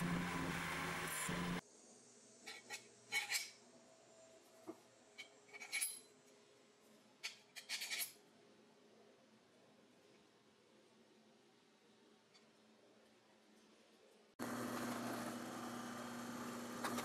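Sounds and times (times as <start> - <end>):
metal-on-metal clicks and scrapes: 7.2 - 8.2.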